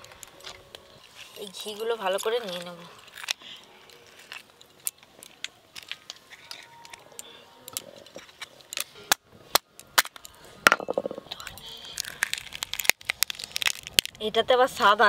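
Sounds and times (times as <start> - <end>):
crab shells cracking: 2.2 - 6.6, 7.2 - 14.2.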